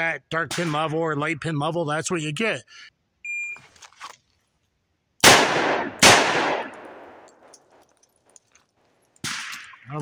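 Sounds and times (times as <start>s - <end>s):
revolver shots with echo: 5.2s - 7.3s.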